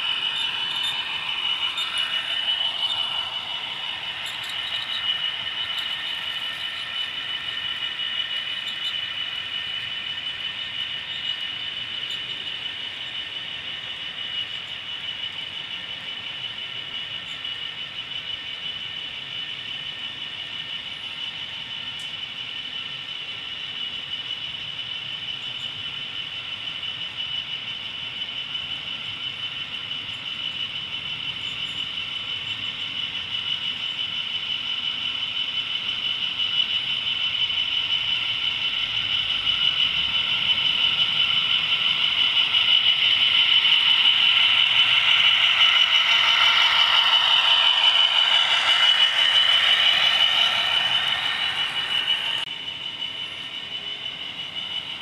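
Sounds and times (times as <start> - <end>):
small wheels rattling on rails: 0.0 - 13.4, 35.2 - 52.5
model train motor whine: 0.0 - 55.0.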